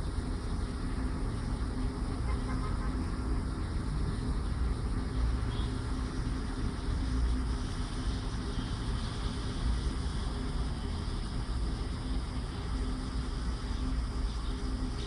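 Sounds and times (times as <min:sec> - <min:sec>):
low rumble of city traffic: 0:00.0 - 0:15.0.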